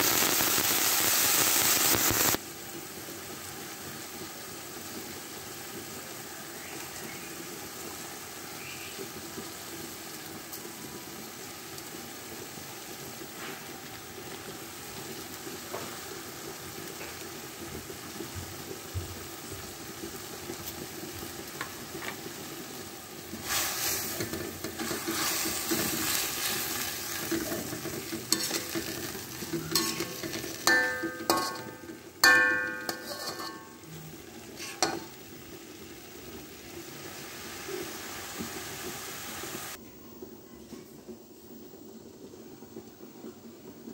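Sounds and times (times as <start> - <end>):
vegetables sizzling in a wok: 0.0 - 43.9
spatula scraping a ringing wok: 23.4 - 35.1.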